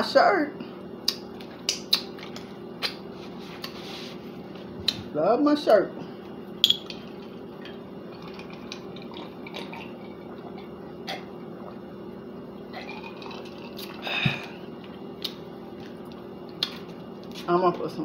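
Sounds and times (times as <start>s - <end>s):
steady low hum: 0.0s - 18.0s
wine glass handling clicks: 6.6s - 7.0s
sipping: 6.9s - 17.4s.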